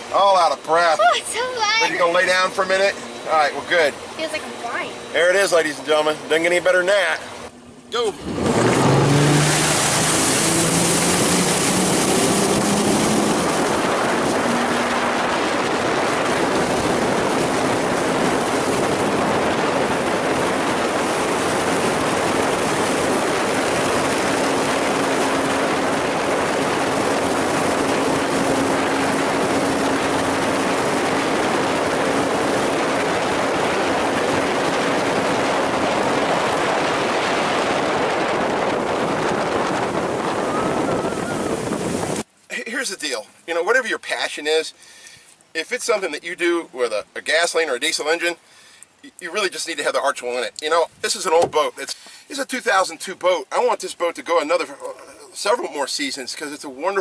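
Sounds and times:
boat engine drone: 0.0s - 42.5s
rush of wind and water spray: 8.0s - 42.3s.

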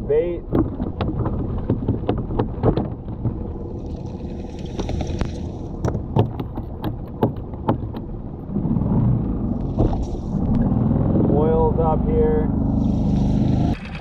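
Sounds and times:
boat motor rumble: 0.0s - 14.0s
sharp knocks: 0.4s - 3.6s, 5.8s - 8.2s.

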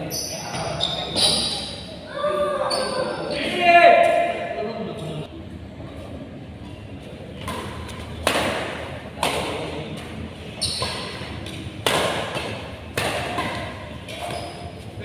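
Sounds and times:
rackets hitting shuttlecock: 7.4s - 14.7s.

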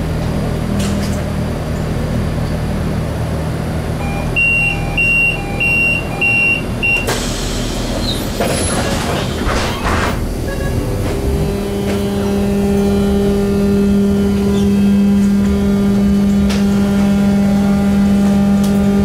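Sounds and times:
hum of stopped train car: 0.0s - 19.0s
two-tone warning beep: 4.0s - 7.1s
train doors shutting with a thud: 4.0s - 13.1s.

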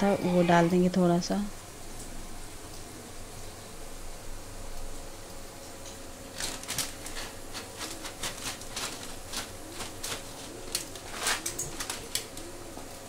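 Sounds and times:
crinkling plastic packaging: 6.2s - 13.0s.

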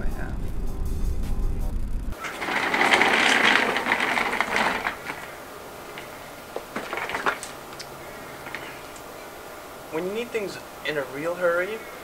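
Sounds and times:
chair casters rattling on paving: 2.2s - 9.3s.

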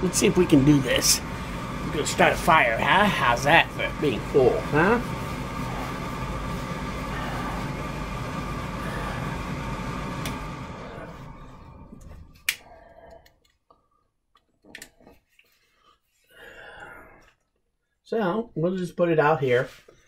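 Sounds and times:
blower fan whooshing: 0.0s - 13.3s.

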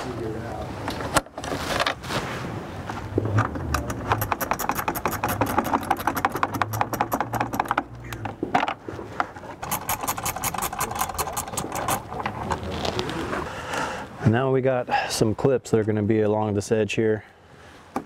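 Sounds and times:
ratcheting wrench clicking: 3.8s - 7.9s, 9.6s - 12.1s.

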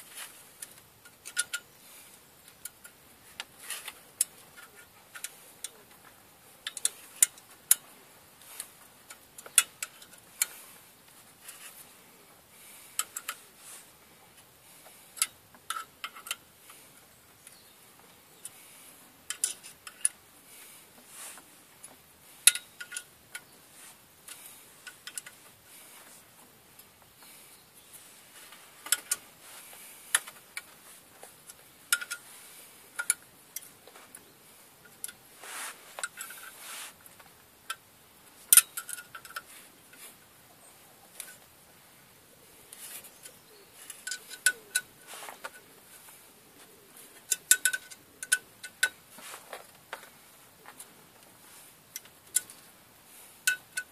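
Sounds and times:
metal tools clicking on bolts: 0.6s - 1.7s, 3.9s - 6.0s, 6.6s - 7.8s, 9.0s - 10.6s, 15.2s - 16.8s, 19.2s - 20.2s, 22.3s - 23.5s, 24.2s - 25.4s, 31.4s - 32.3s, 33.0s - 33.8s, 38.5s - 39.5s, 43.1s - 45.7s, 46.7s - 49.0s, 51.9s - 52.7s, 53.4s - 53.9s.

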